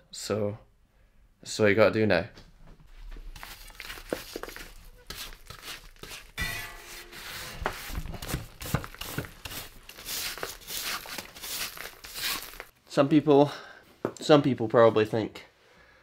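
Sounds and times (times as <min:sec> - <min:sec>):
brush scrubbing mud off bike: 0:03.3 - 0:06.4, 0:07.1 - 0:12.7.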